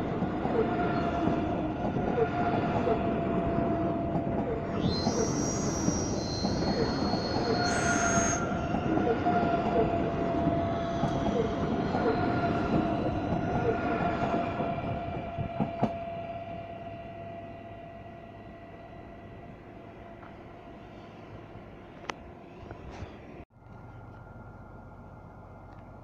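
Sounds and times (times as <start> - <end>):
electric train passing: 0.0 - 26.0
high-pitched wheel squeals: 0.6 - 19.2.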